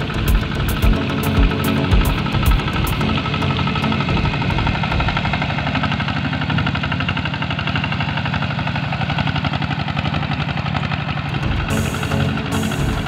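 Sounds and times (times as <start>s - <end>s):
diesel engine chugging: 0.0s - 13.0s.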